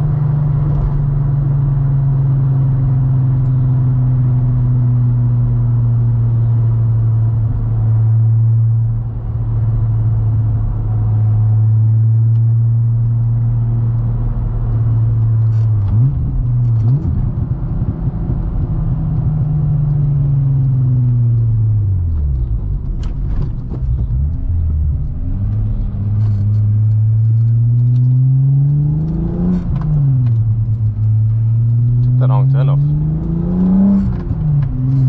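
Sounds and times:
car engine revving: 0.0s - 35.0s.

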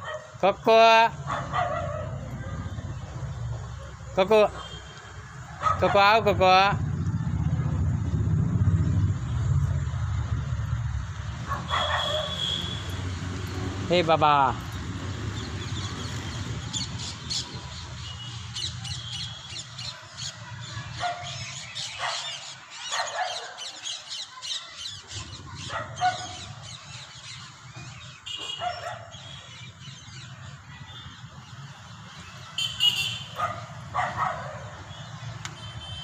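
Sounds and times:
birds chirping: 0.0s - 36.0s
harsh bird calls: 15.1s - 35.9s.

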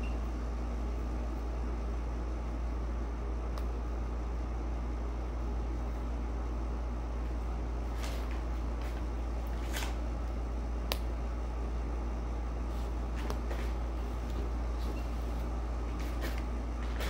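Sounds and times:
low background hum: 0.0s - 17.0s
rustles and clicks of movement: 12.7s - 17.0s.

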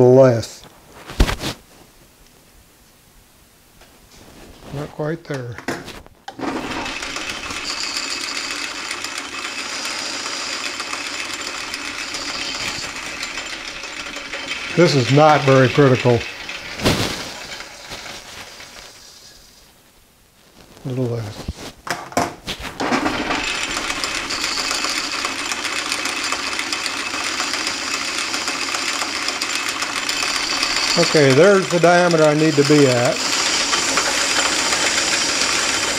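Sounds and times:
high steady whine: 6.2s - 21.8s, 30.0s - 35.9s
metal lathe running: 6.3s - 19.0s, 22.8s - 35.9s.

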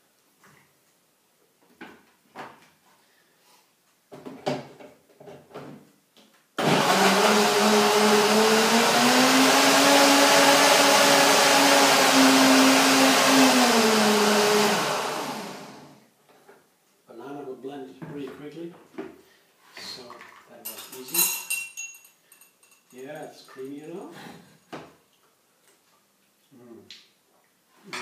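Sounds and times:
blender motor running: 6.6s - 16.0s.

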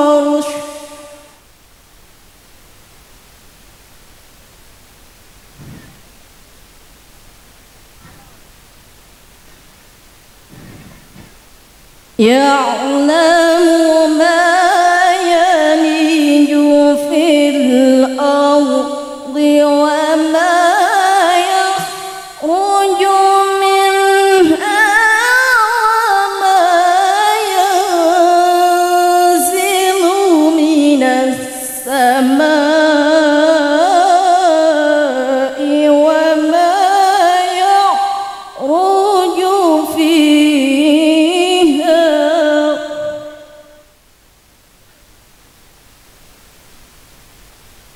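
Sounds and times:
woman chanting into microphone: 0.0s - 1.2s, 12.2s - 43.6s.

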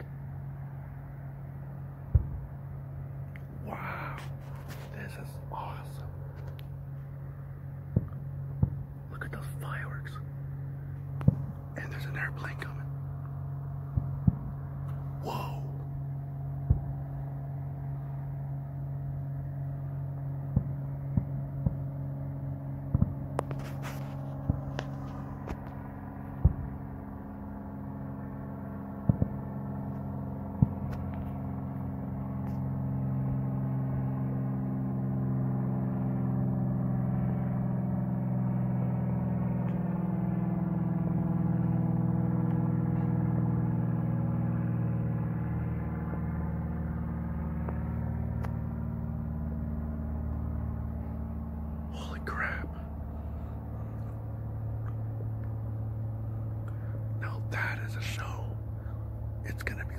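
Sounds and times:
airplane engines passing over: 0.0s - 59.9s
distant fireworks popping: 2.0s - 18.6s, 19.2s - 27.6s, 28.2s - 32.8s.

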